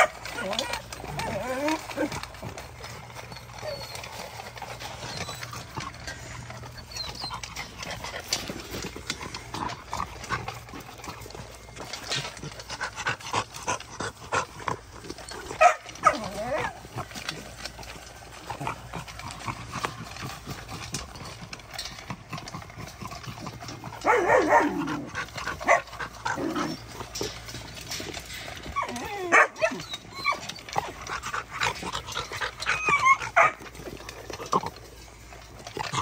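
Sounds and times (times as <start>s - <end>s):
dog whines and whimpers: 0.0s - 9.8s, 15.0s - 22.0s, 23.2s - 34.7s
puppies crunching kibble in metal bowls: 0.0s - 36.0s.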